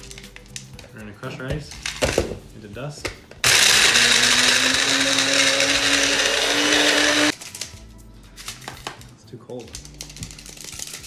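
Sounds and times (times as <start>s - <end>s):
blender crushing ice: 3.4s - 7.4s.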